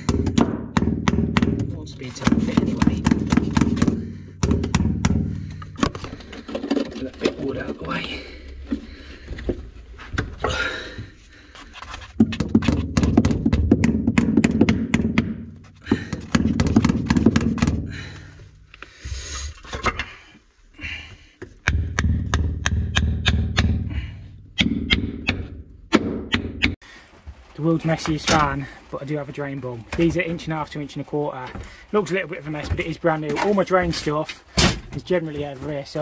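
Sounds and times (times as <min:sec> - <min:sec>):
rumbling handling noise: 0:00.0 - 0:20.5
hands working plastic pipe: 0:00.0 - 0:36.0.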